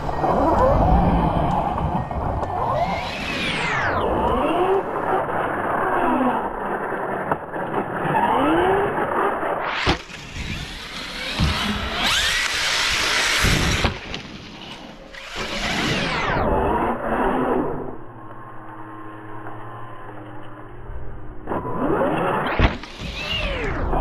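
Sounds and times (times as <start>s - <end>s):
electric motor whining: 7.8s - 14.2s, 15.0s - 20.7s, 21.4s - 24.0s.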